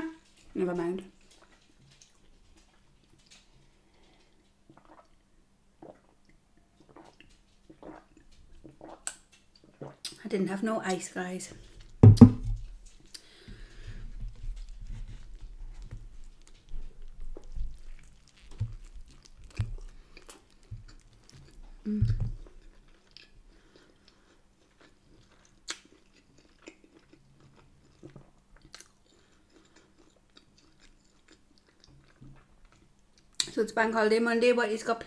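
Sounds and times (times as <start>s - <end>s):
low thump: 12.0s - 12.6s
biting and chewing food: 12.5s - 33.5s.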